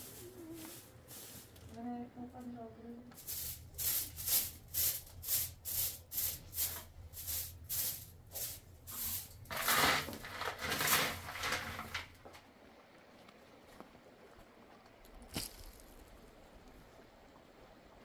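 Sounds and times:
broom sweeping floor: 0.0s - 1.8s, 3.1s - 12.0s.

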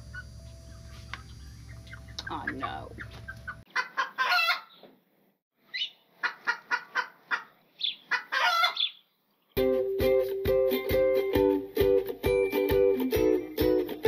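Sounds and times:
chickens clucking: 0.0s - 5.0s, 5.7s - 9.2s
ukulele music: 9.6s - 14.0s.

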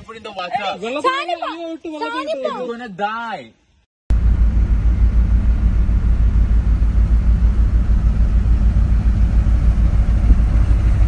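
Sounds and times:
boat engine rumbling: 4.1s - 11.0s.

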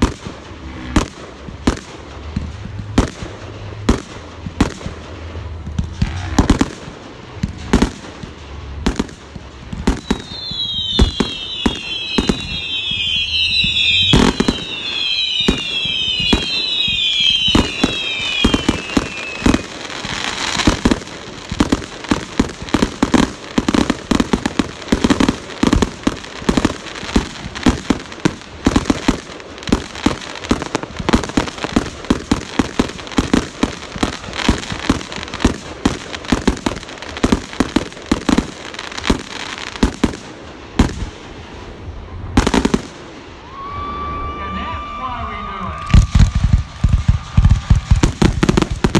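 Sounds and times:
firework bangs: 0.0s - 48.9s
fireworks popping and crackling: 0.0s - 48.9s
firework whistles falling in pitch: 9.9s - 20.9s, 43.4s - 48.9s.

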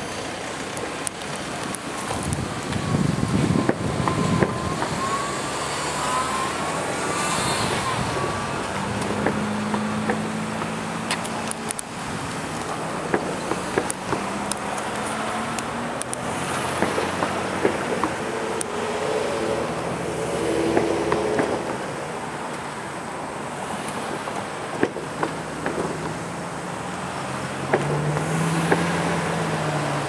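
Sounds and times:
thin wavering squeal: 4.1s - 8.8s
freight train rumbling past: 16.8s - 22.4s.

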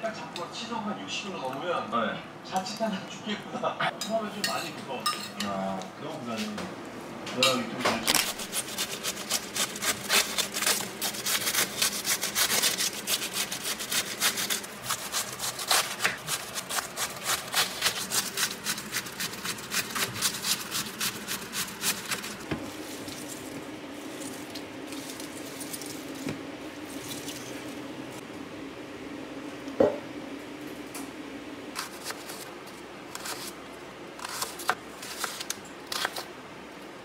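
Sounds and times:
knife slicing cabbage: 8.1s - 23.5s, 31.8s - 32.5s, 33.1s - 33.6s, 34.2s - 36.3s.

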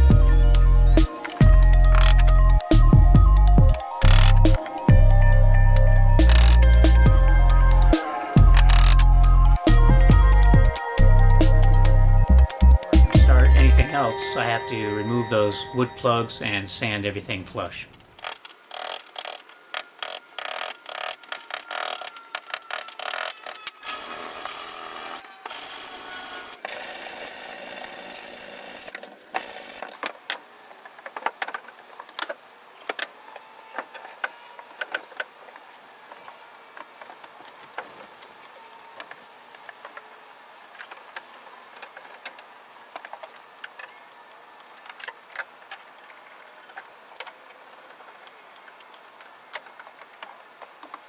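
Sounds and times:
wood and metal clamps clicking: 18.0s - 23.8s.

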